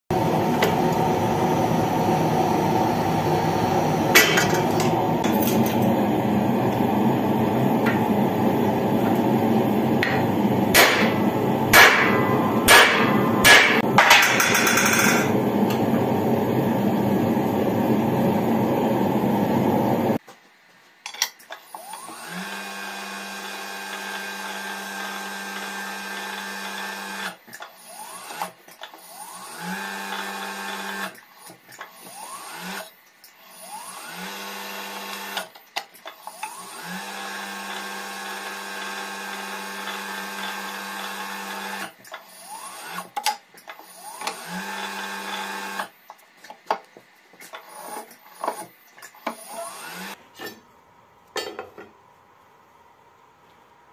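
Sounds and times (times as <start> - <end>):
machine hum: 0.1 - 20.2
hammer striking steel: 4.1 - 5.6, 10.0 - 15.4.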